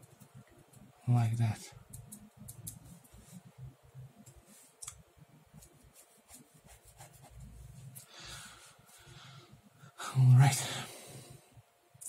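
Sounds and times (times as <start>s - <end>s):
pen scratching on paper: 5.6s - 7.8s.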